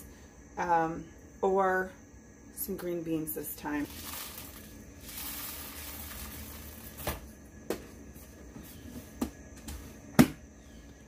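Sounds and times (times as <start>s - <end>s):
dried corn kernels rustling: 3.8s - 7.1s.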